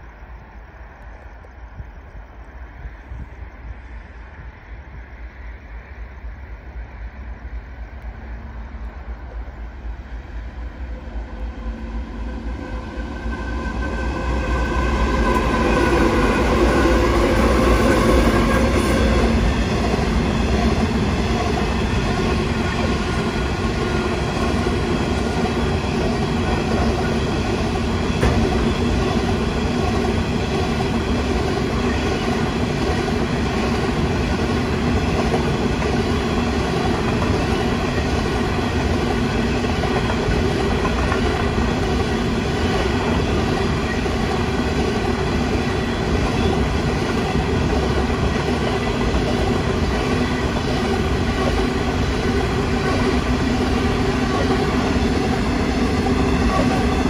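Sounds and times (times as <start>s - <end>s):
diesel locomotive engine: 0.0s - 57.0s.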